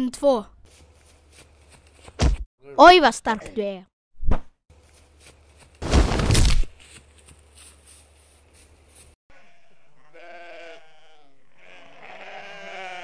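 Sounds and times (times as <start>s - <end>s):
goats bleating: 9.3s - 13.0s.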